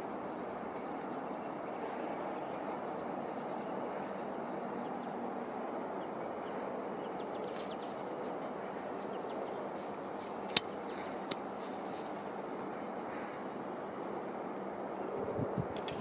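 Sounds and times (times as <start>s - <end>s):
sharp clicks: 10.4s - 11.4s
faint bird chirps: 12.6s - 15.2s.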